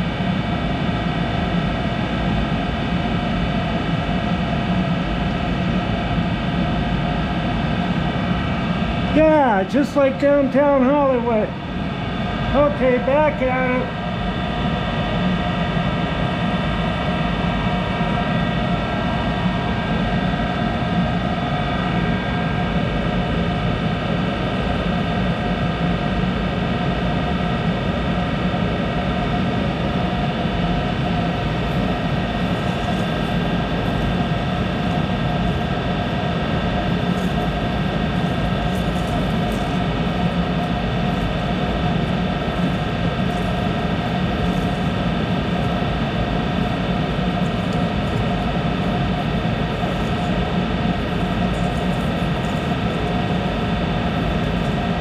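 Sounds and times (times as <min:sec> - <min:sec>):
lathe humming: 0:28.9 - 0:55.0.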